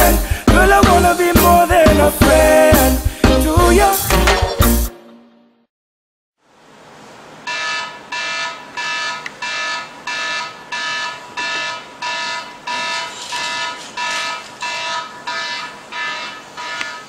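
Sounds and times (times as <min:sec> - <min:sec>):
alarm beeping: 0:07.5 - 0:17.0.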